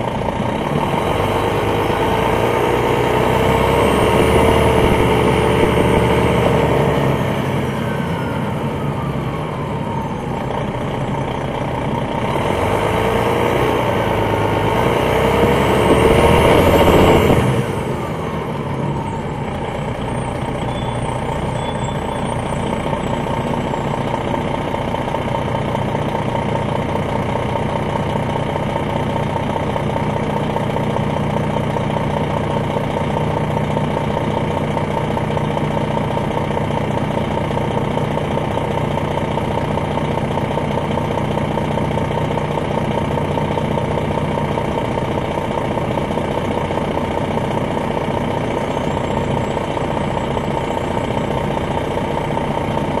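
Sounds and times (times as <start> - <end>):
coach diesel engine pulling: 0.0 - 53.0
high whistle: 20.1 - 22.8.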